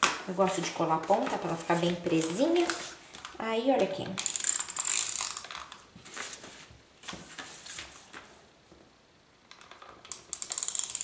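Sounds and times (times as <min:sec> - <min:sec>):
soft paper rustles: 0:06.0 - 0:08.5.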